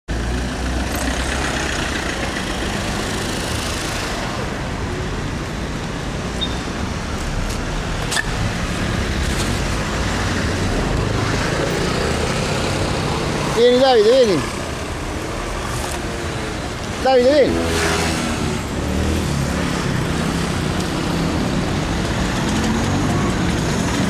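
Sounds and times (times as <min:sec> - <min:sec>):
street traffic rumble: 0:00.1 - 0:24.0.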